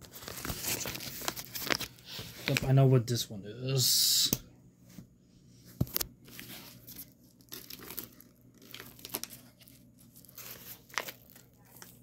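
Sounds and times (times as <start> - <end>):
paper mailer crinkling and tearing: 0.0 - 2.7, 6.8 - 12.0.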